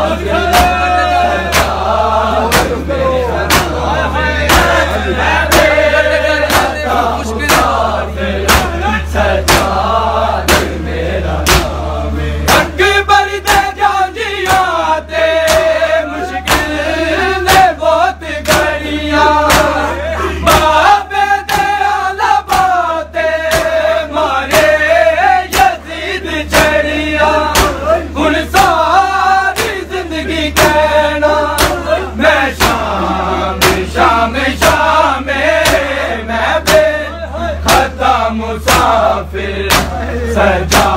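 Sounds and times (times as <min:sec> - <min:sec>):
men chanting in unison: 0:00.0 - 0:40.9
steady low hum: 0:00.0 - 0:40.9
hands slapping bare chests: 0:03.5 - 0:03.8, 0:15.4 - 0:15.8, 0:18.4 - 0:18.7, 0:19.5 - 0:19.8, 0:22.5 - 0:22.8, 0:23.5 - 0:23.8, 0:25.5 - 0:25.8, 0:27.5 - 0:27.8, 0:31.6 - 0:31.8, 0:35.6 - 0:35.9, 0:39.7 - 0:40.0.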